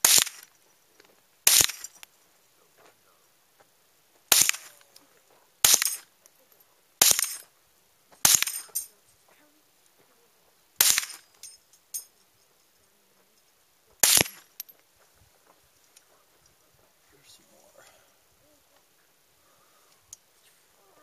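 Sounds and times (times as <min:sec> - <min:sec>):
rifle shots: 0:00.0 - 0:00.5, 0:01.5 - 0:02.0, 0:04.3 - 0:04.7, 0:05.6 - 0:06.0, 0:07.0 - 0:07.4, 0:08.2 - 0:08.8, 0:10.8 - 0:11.3, 0:14.0 - 0:14.5.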